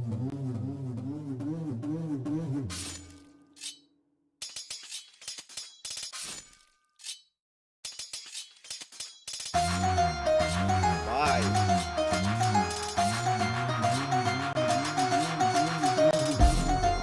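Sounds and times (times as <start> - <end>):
background music: 9.6 - 17.0.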